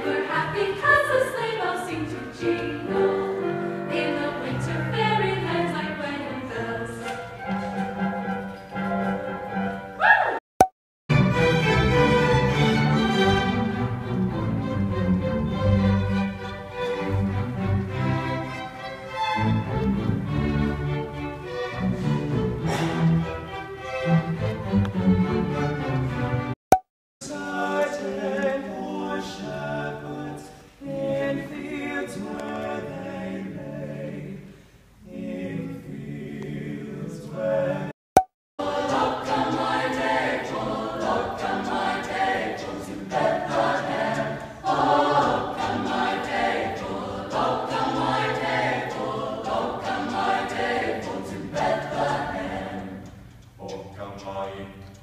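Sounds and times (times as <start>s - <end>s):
choir singing: 0.0s - 8.4s, 27.2s - 37.9s, 38.6s - 53.2s.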